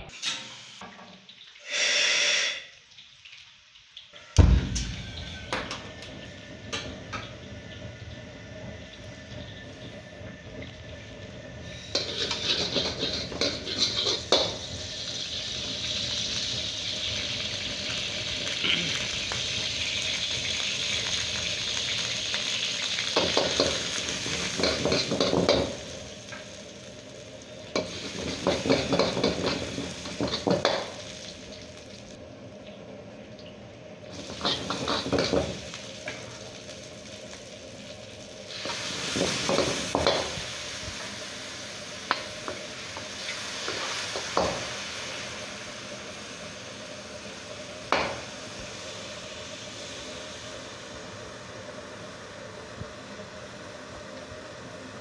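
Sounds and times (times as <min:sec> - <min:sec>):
oil sizzling in a wok: 0:00.0 - 0:55.0
metal ladle scraping wok: 0:11.6 - 0:14.5.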